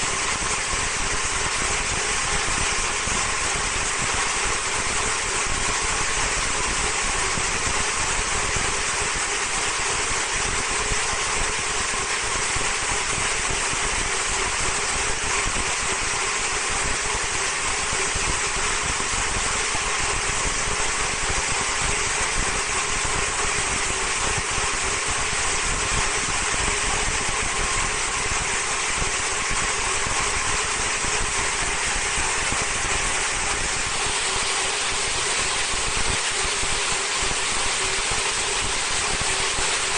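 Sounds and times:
machine whirring: 0:26.3 - 0:39.9.

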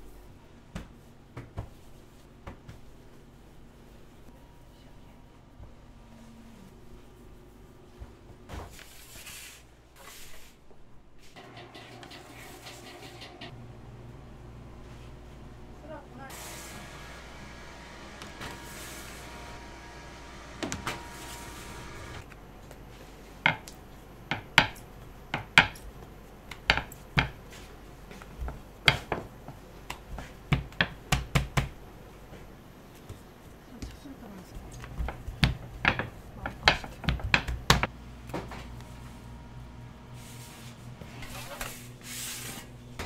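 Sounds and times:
kitchen utensils and pans clinking: 0:11.4 - 0:13.5.

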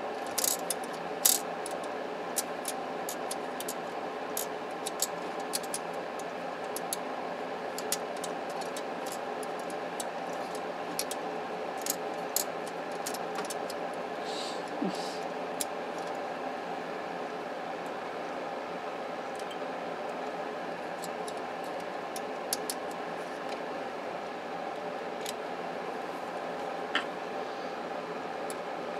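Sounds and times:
steady background hum: 0:00.0 - 0:28.9.

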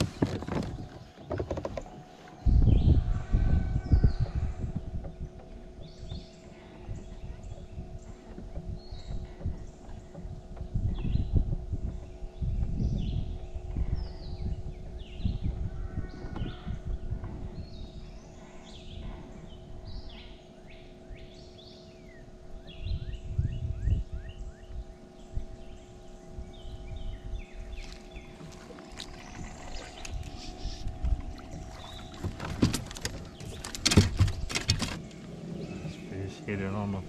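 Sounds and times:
low rumbles and knocks: 0:00.0 - 0:18.1, 0:26.5 - 0:36.1
birds chirping and calling: 0:00.1 - 0:37.0.

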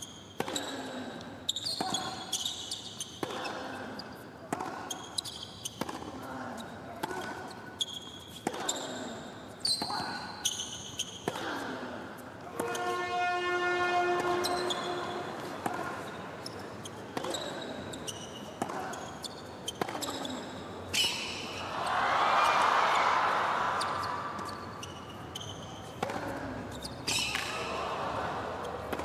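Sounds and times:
shoe squeaks on court: 0:00.0 - 0:11.3, 0:14.2 - 0:22.6, 0:23.8 - 0:27.7
racquets hitting tennis ball: 0:04.5 - 0:06.2, 0:14.2 - 0:16.1, 0:17.1 - 0:18.0, 0:19.7 - 0:20.4, 0:23.8 - 0:29.0
loud horn-like tone: 0:12.6 - 0:15.3.

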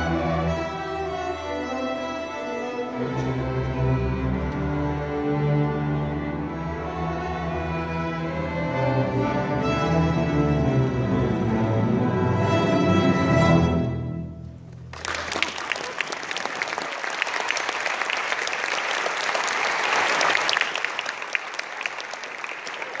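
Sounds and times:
audience applause: 0:14.8 - 0:23.0.

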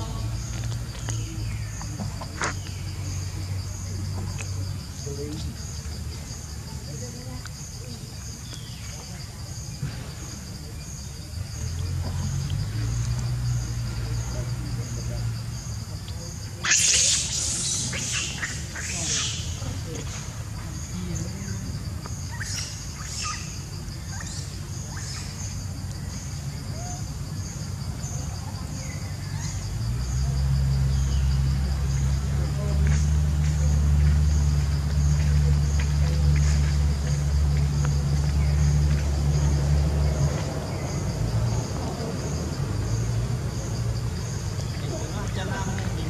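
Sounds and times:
high insect buzz: 0:16.6 - 0:41.7.

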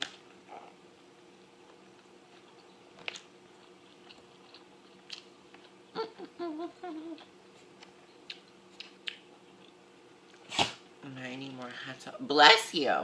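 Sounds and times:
person chewing food: 0:01.6 - 0:05.8, 0:07.1 - 0:10.4
person humming: 0:06.0 - 0:07.3.

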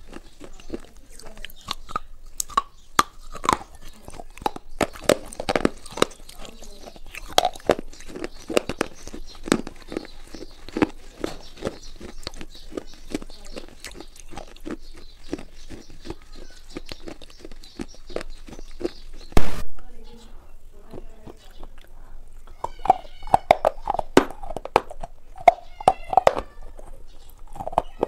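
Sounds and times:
person chewing something crunchy: 0:00.0 - 0:19.7, 0:20.9 - 0:28.0.

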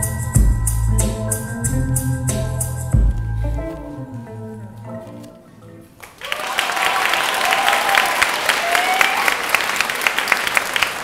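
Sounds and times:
dance music: 0:00.0 - 0:05.6
audience applause: 0:06.0 - 0:11.0.

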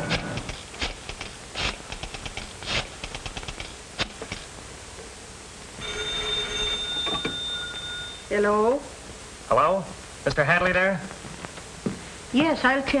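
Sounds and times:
telephone bell ringing: 0:05.8 - 0:08.4.

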